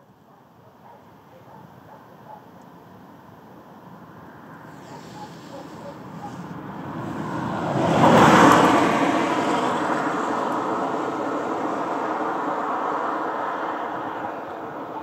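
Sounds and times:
vehicle passing close by: 4.0 - 15.0.

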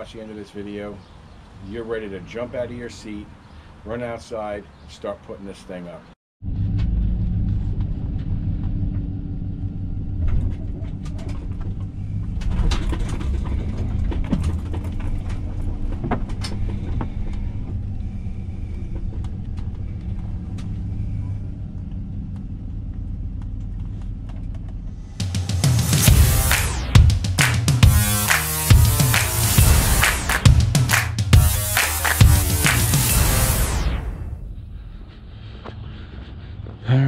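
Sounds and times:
vehicle engine and road rumble: 6.0 - 27.3.

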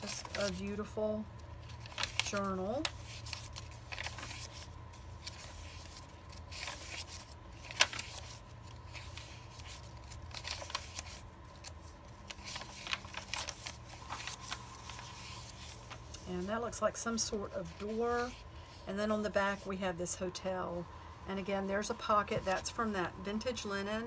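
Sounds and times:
paper pages rustling: 0.0 - 16.4.

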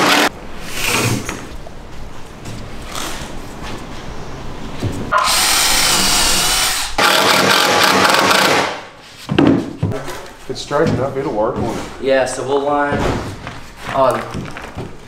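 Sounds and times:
power drill drilling into wood: 5.2 - 8.7.

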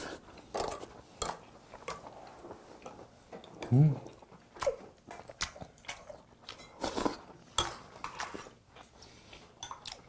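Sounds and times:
soft chewing: 0.0 - 10.0
cutlery clinking on ceramic bowls: 7.6 - 8.5.

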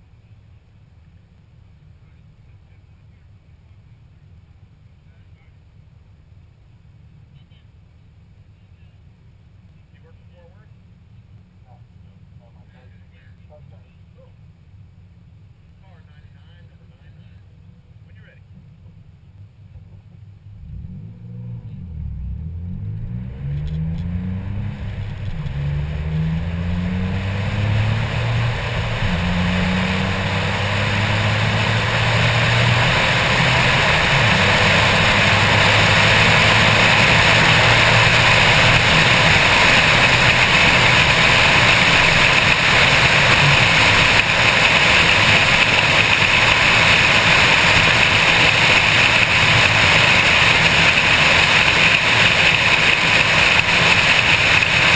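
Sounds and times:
car engine revving: 20.4 - 54.9.

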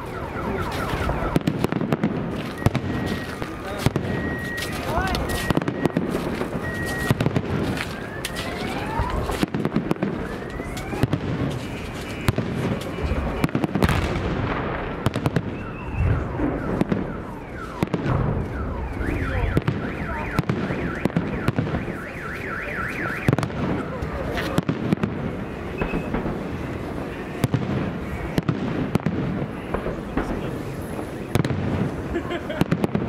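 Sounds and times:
warbling alarm siren: 0.0 - 12.3, 15.3 - 24.3
fireworks booming: 0.0 - 22.3, 23.1 - 33.0
fireworks crackling: 0.0 - 33.0.

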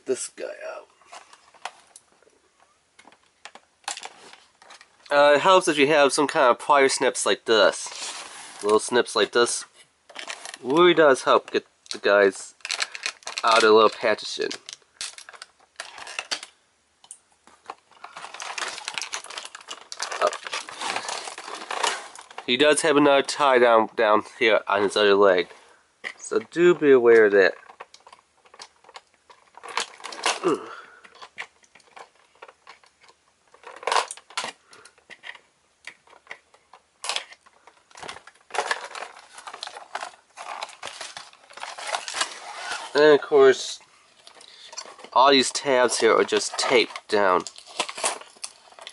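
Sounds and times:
plastic packaging rustling: 3.0 - 16.6, 17.4 - 48.9
plastic wrap crinkling: 7.1 - 16.6, 17.5 - 23.8, 26.0 - 48.9.

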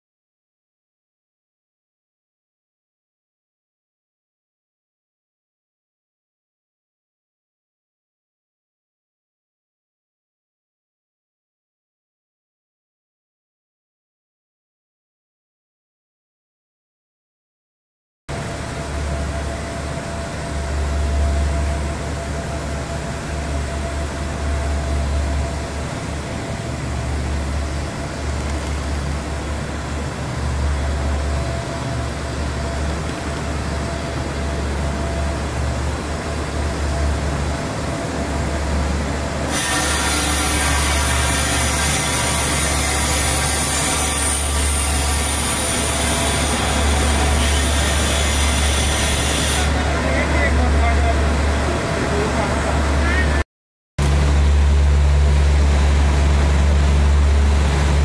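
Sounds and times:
constant hum: 18.3 - 53.4, 54.0 - 58.0
diesel train engine idling: 18.4 - 39.5.

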